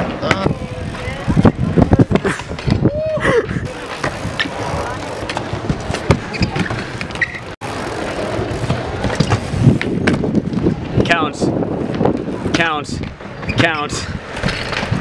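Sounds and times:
bike tyre rolling on deck: 0:00.0 - 0:13.6, 0:14.2 - 0:15.0
bike clicks: 0:03.6 - 0:10.8.

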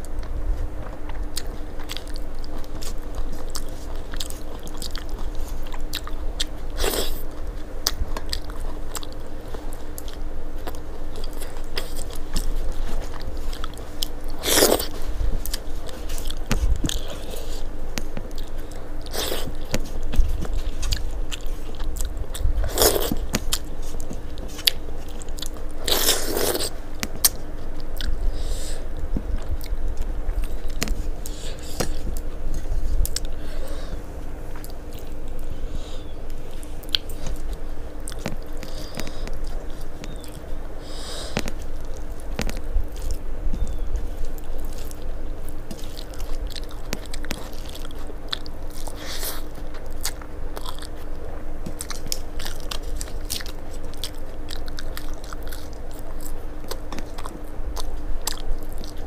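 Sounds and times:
faint hum: 0:00.0 - 0:59.0
person chewing food: 0:00.0 - 0:59.0
sharp crunches: 0:11.2 - 0:18.4.

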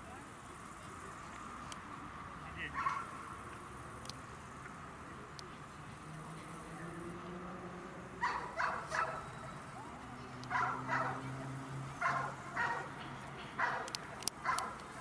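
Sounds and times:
dog barking: 0:02.8 - 0:03.1, 0:08.2 - 0:09.3, 0:10.5 - 0:11.2, 0:12.0 - 0:12.9, 0:13.6 - 0:14.8.

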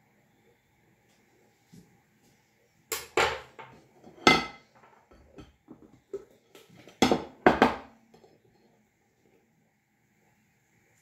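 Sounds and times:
plate and knife clattering on stone: 0:03.2 - 0:05.6.

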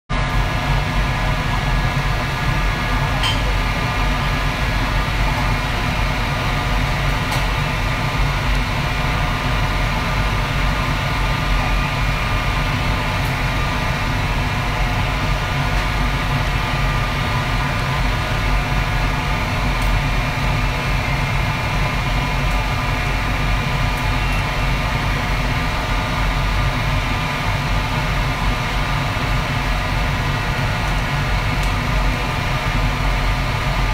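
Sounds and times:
gas burner and ventilation rumble: 0:00.1 - 0:33.9.

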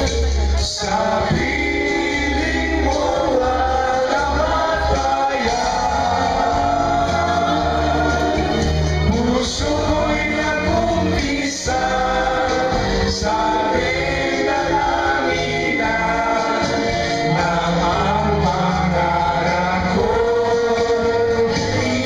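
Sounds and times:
backing music: 0:00.0 - 0:22.0
men singing together: 0:00.0 - 0:22.0.

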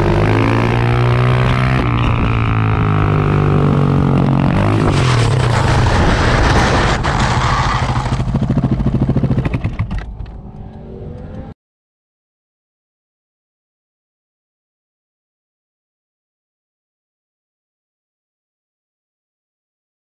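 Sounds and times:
motorcycle engine running: 0:00.0 - 0:05.1, 0:07.3 - 0:11.5.

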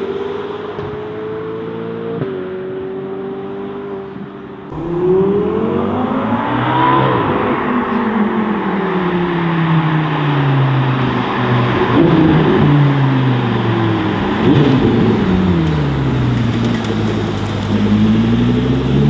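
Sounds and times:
car engine holding steady note: 0:04.6 - 0:09.8, 0:11.8 - 0:19.0
car engine revving: 0:04.7 - 0:19.0.

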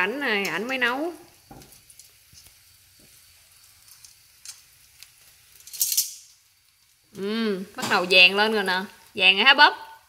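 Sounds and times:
faint frying sizzle with pops: 0:00.0 - 0:10.0.

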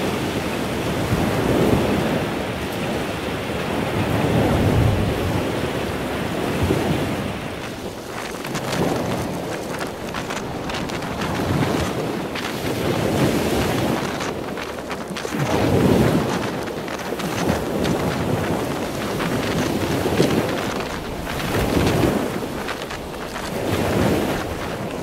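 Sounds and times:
heavy surf washing up beach: 0:00.0 - 0:25.0
wind buffeting microphone: 0:00.0 - 0:25.0
rain spattering camera: 0:07.4 - 0:25.0.

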